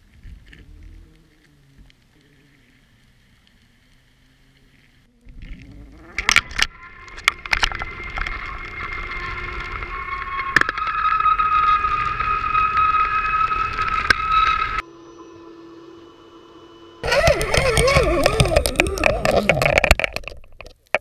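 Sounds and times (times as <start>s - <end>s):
muffled underwater sound: 0.0s - 8.9s, 17.0s - 20.1s
steady high whine: 5.1s - 20.1s.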